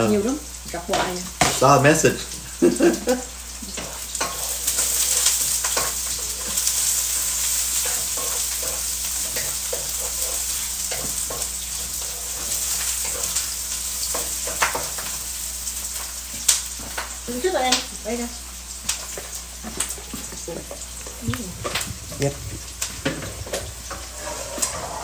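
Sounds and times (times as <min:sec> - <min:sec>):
food sizzling in a pan: 0:00.0 - 0:25.0
spatula scraping and tapping pan: 0:03.7 - 0:15.2, 0:18.8 - 0:25.0.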